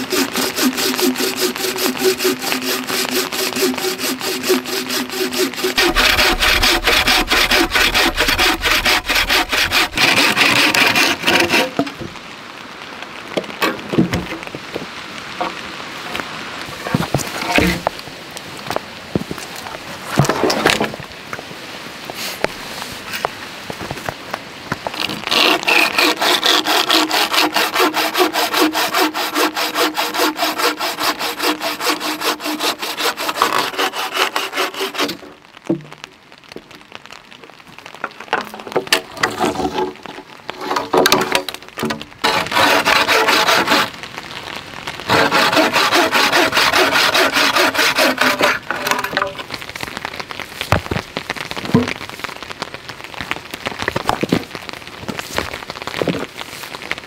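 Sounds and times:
bow saw cutting a log: 0:00.0 - 0:11.9, 0:24.9 - 0:35.3, 0:40.6 - 0:43.9, 0:45.1 - 0:49.2.

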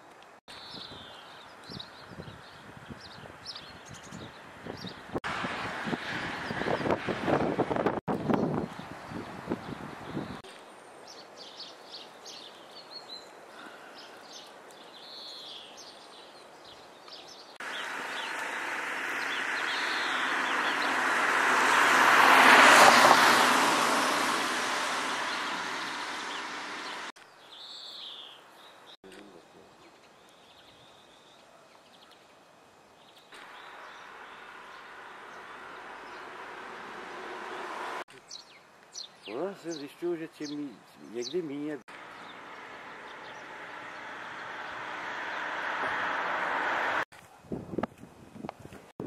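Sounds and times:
small birds chirping: 0:00.5 - 0:05.2, 0:08.2 - 0:21.1, 0:24.8 - 0:46.2
passing vehicle rushing: 0:05.3 - 0:08.0, 0:17.6 - 0:27.1, 0:33.4 - 0:38.1, 0:41.9 - 0:47.1.

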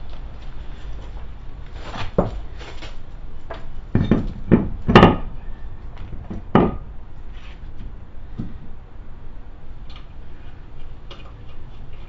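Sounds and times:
wheel knocking onto hub studs: 0:03.5 - 0:05.4.

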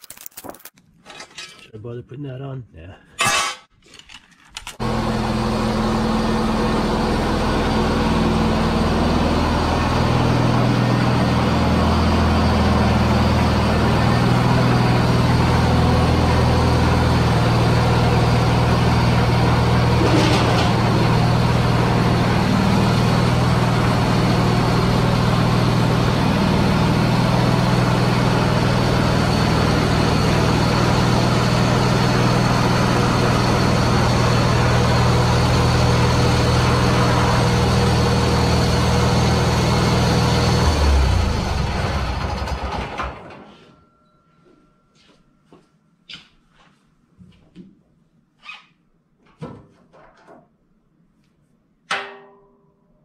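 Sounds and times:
lawn tractor engine running: 0:04.7 - 0:43.5.

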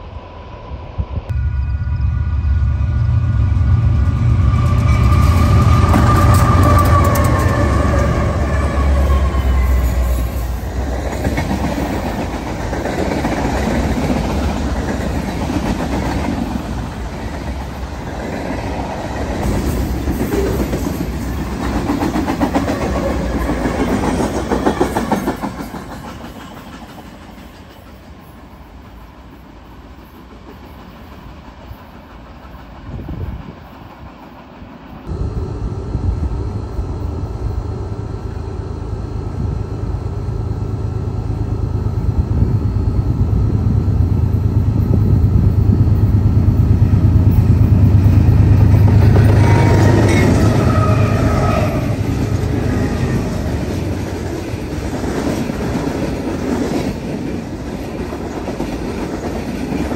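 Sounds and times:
distant freight train rumble: 0:00.0 - 0:59.9
locomotive engines rumbling: 0:01.3 - 0:24.7, 0:30.8 - 0:59.6
train wheels clacking on rails: 0:02.6 - 0:35.1, 0:44.7 - 0:59.9.

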